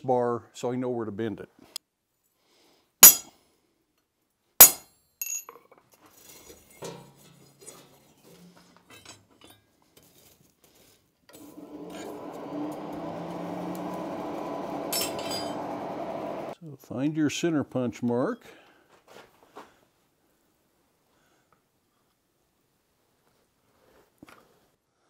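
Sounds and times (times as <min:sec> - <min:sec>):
light metal clinks: 0:04.6 - 0:05.6
forge blower rushing hum: 0:11.4 - 0:16.6.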